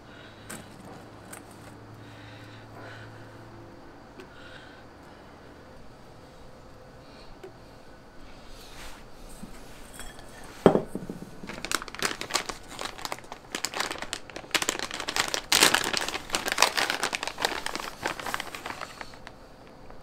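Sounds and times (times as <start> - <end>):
plastic packaging crinkling: 10.8 - 20.0.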